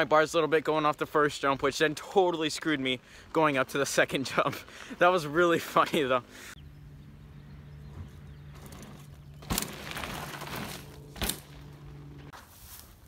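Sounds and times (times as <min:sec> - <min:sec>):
bike tyres on dirt trail: 0:01.7 - 0:13.0
steady low hum: 0:06.2 - 0:12.4.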